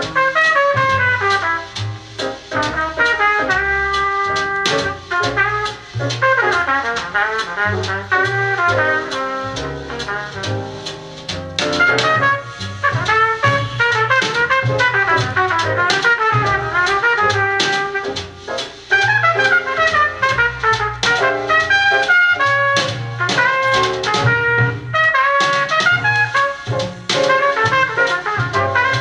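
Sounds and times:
drum kit: 0.0s - 29.0s
jazz trumpet: 0.0s - 29.0s.

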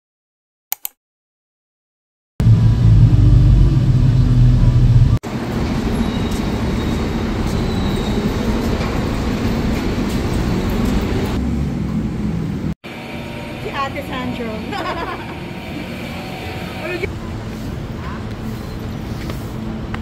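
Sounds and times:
vehicle engines rumbling: 2.4s - 20.0s
city street traffic hiss: 5.3s - 20.0s.

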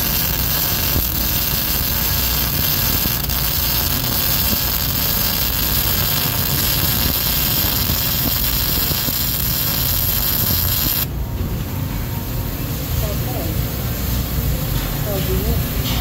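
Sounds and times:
electric welding arc: 0.0s - 11.1s.

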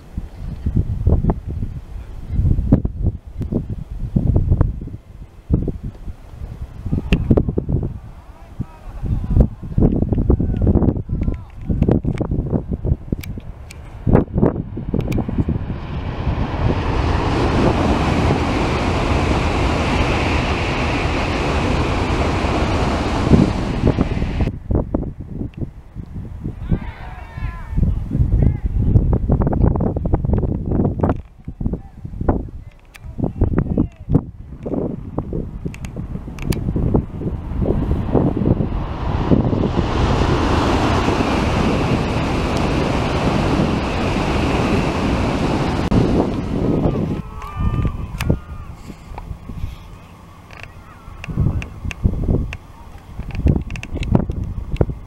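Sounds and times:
high-speed train passing: 12.3s - 25.2s, 35.2s - 55.0s.

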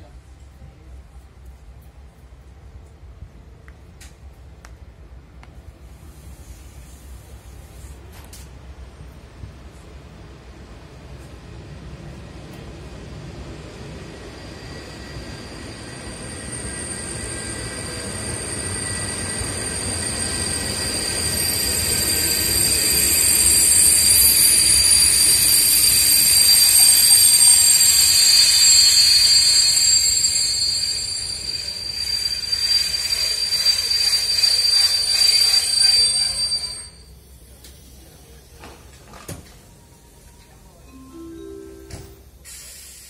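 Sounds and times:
train rolling to a stop: 0.4s - 43.0s
brake squeal: 14.3s - 37.2s.

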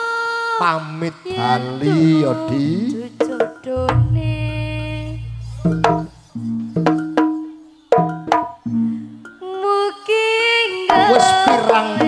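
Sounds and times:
struck bronze notes ringing: 3.6s - 6.8s
deep gong tone: 3.8s - 6.4s.

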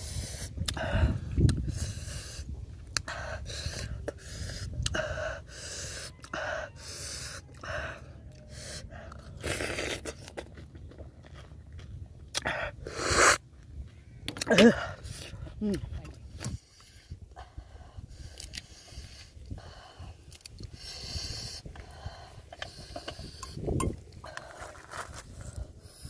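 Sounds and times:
chewing and mouth noises: 0.4s - 5.1s, 5.9s - 13.7s, 18.1s - 25.7s
loud slurp: 9.4s - 10.5s.

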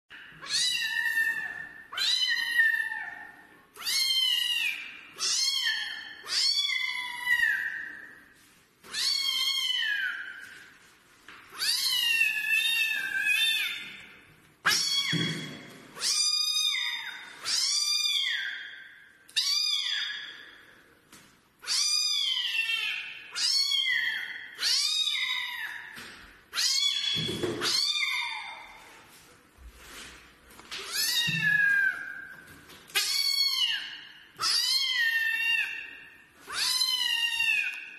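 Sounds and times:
kitten meowing: 3.8s - 7.8s, 14.7s - 18.7s, 33.0s - 35.8s.

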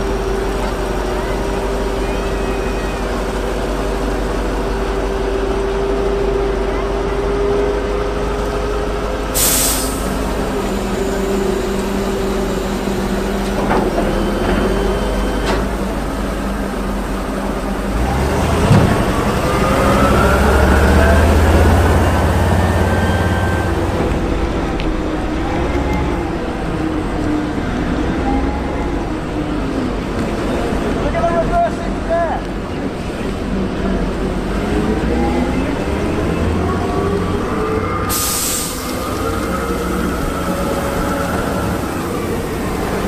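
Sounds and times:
rising engine whine: 0.0s - 9.4s, 10.0s - 43.0s
truck engine running: 0.0s - 43.0s
air brake hiss: 9.4s - 12.8s, 38.1s - 39.4s.

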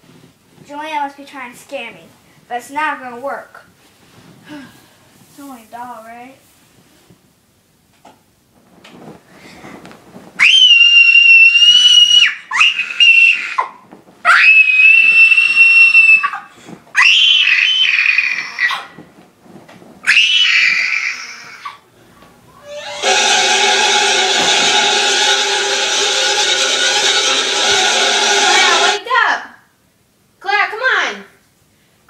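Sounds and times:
girl screaming: 17.0s - 18.7s, 20.1s - 21.6s.

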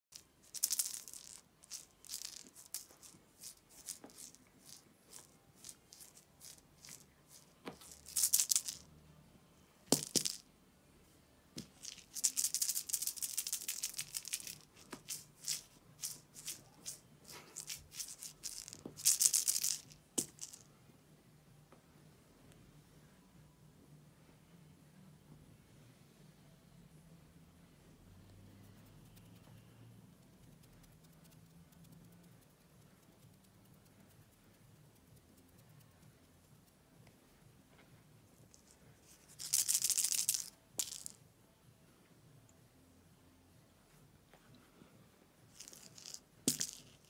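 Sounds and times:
rattle ball shaking: 0.1s - 9.0s, 9.9s - 10.5s, 11.6s - 20.7s, 30.2s - 36.8s, 38.3s - 41.2s, 45.4s - 47.0s.

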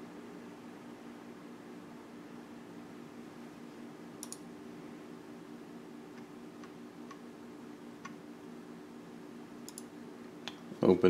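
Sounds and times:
steady low hum: 0.0s - 11.0s
computer mouse clicks: 4.2s - 4.4s, 9.6s - 9.9s.

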